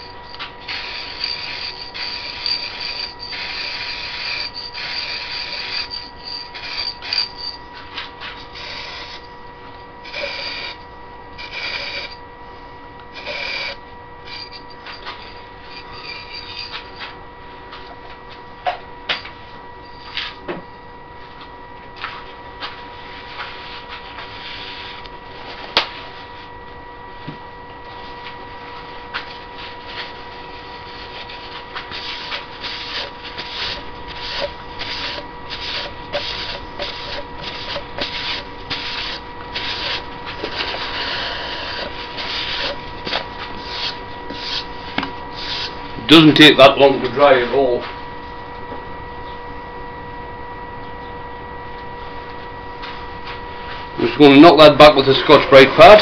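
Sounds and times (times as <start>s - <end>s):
lathe whine: 0.0s - 56.0s
paper towel rubbing wood: 31.9s - 42.8s, 43.6s - 44.8s, 45.4s - 45.8s.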